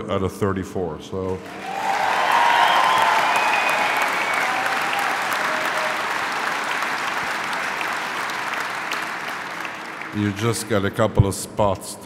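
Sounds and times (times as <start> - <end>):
crowd applauding and cheering: 1.4 - 10.4
whistles: 2.2 - 6.1.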